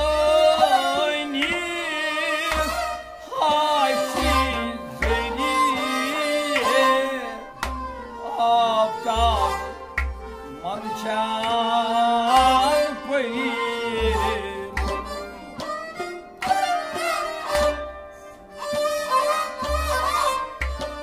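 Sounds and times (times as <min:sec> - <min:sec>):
bowed string instrument: 0:00.0 - 0:21.0
harmonium melody: 0:00.0 - 0:21.0.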